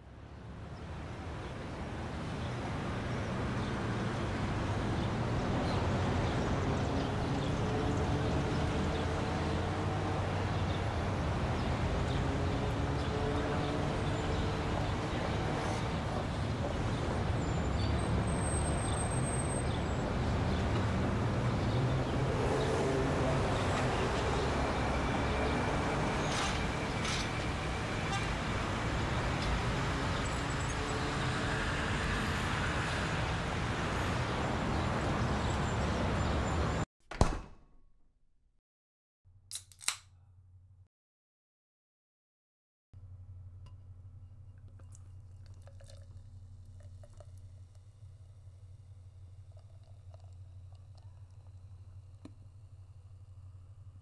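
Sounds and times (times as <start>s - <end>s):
road traffic noise: 0.0s - 36.9s, 43.0s - 54.0s.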